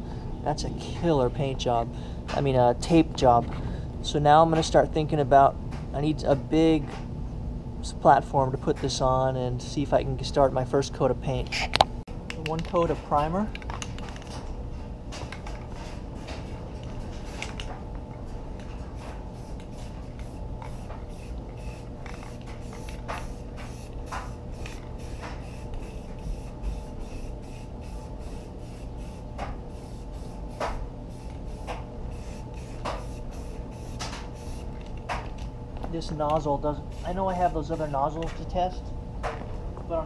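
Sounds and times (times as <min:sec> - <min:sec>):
steady low hum: 0:00.0 - 0:40.0
aerosol spray hissing: 0:19.3 - 0:34.7, 0:36.9 - 0:38.0.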